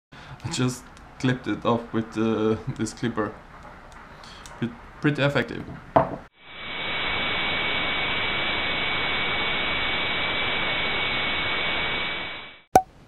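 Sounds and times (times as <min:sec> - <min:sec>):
thin high whine: 0:06.4 - 0:12.7
tv static hiss: 0:06.4 - 0:12.7.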